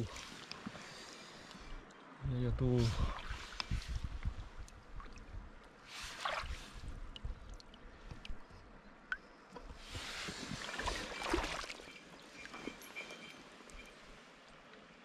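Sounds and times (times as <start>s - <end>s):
stream washing: 0.0s - 1.7s, 2.7s - 8.4s, 9.7s - 14.5s
water splashing at river bank: 0.0s - 1.7s, 2.7s - 8.4s, 9.1s - 12.9s.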